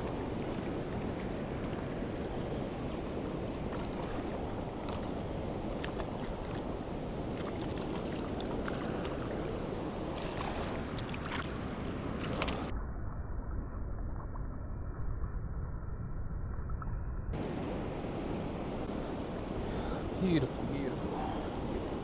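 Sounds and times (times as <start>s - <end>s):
river water rushing: 0.0s - 12.7s.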